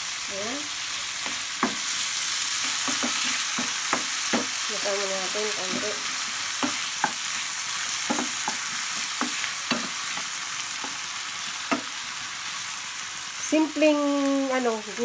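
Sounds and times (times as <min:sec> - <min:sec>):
food sizzling in a frying pan: 0:00.0 - 0:15.0
wooden spatula knocking on pan: 0:02.6 - 0:04.6, 0:06.6 - 0:07.2, 0:08.0 - 0:11.0.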